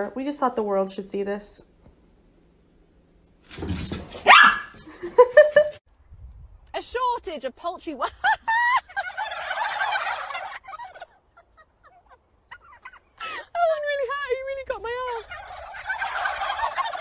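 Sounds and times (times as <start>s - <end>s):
turkeys gobbling: 8.5s - 13.4s, 14.8s - 17.0s.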